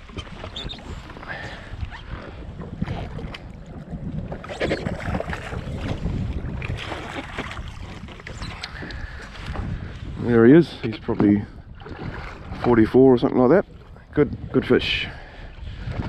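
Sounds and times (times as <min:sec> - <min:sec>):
water lapping against hull: 0:00.0 - 0:16.0
wind buffeting microphone: 0:00.0 - 0:16.0
knocks and splashes: 0:02.1 - 0:09.7, 0:11.0 - 0:13.9.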